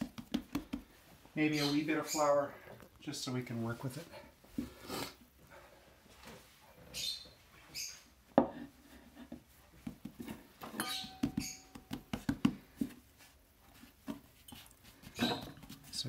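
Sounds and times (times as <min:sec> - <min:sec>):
soft taps and pats on dough: 0:00.0 - 0:01.0, 0:09.3 - 0:10.4, 0:11.2 - 0:15.9
dough rustling: 0:08.6 - 0:16.0.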